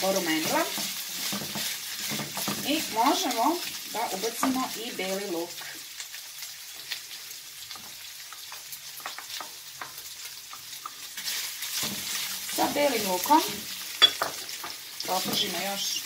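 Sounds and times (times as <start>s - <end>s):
wooden spoon stirring: 0.0s - 4.8s, 7.8s - 15.7s
chicken sizzling in a frying pan: 0.0s - 16.0s.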